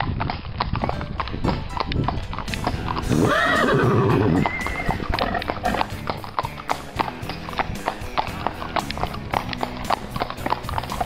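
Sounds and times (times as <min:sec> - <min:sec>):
hooves clip-clopping on asphalt: 0:00.0 - 0:11.0
horse whinnying: 0:03.0 - 0:06.3.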